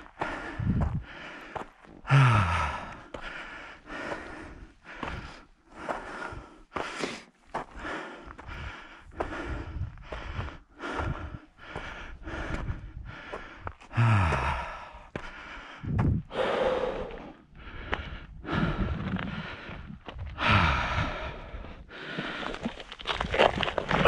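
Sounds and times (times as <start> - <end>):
person breathing hard: 0.0 - 22.8
voiced sigh: 2.0 - 3.4, 13.9 - 15.0, 15.8 - 17.8, 20.4 - 22.5.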